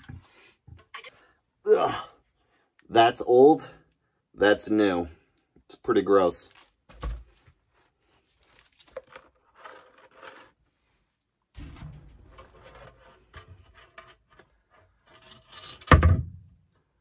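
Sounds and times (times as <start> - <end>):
soft scrapes and rustles: 7.3 - 11.2.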